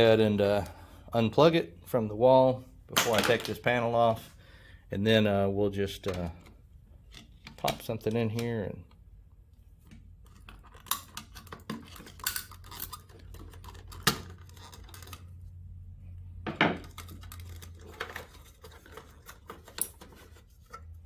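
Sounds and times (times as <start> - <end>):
plastic clicks and scrapes: 9.9 - 15.3.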